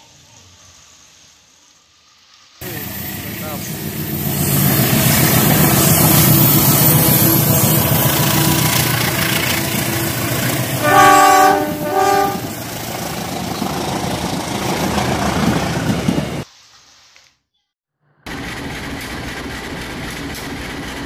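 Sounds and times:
toy train horn blasts: 5.4 - 12.6.

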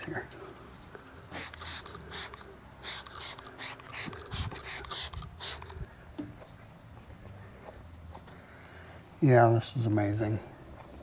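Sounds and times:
insects chirring: 0.0 - 11.0
spray bottle spritzing: 1.3 - 5.8.

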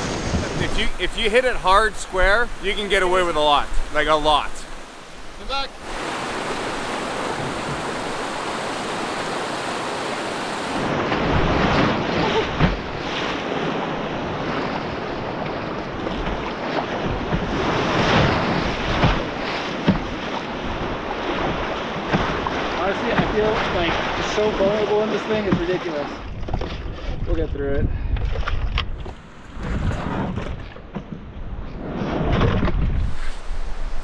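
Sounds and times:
river rapid rushing: 0.0 - 15.2
wind buffeting microphone: 0.0 - 24.7, 26.2 - 34.0
paddle strokes splashing: 0.0 - 27.3
waves against canoe hull: 0.0 - 34.0.

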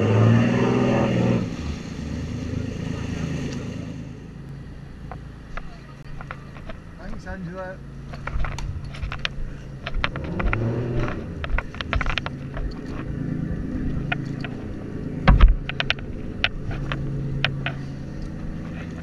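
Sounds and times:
boat engine running: 0.0 - 19.0
rope and deck fittings clattering: 8.0 - 19.0.

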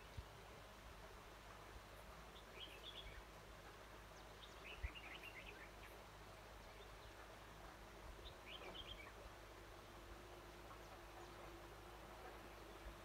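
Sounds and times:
bird warbling song: 2.3 - 3.3, 4.0 - 7.4, 8.1 - 9.3.

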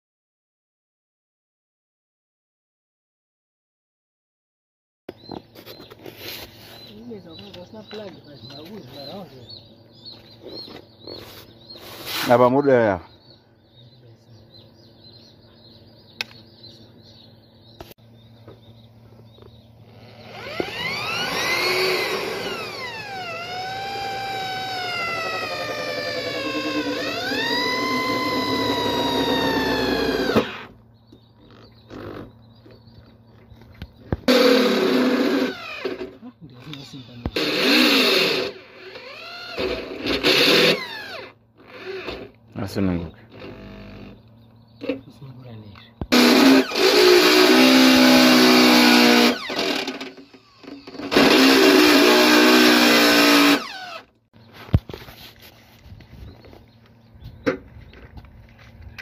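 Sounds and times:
sharp clicks: 16.2 - 16.4
electric drill boring into metal: 20.0 - 30.7, 34.3 - 36.1, 37.3 - 42.3, 46.1 - 54.1.

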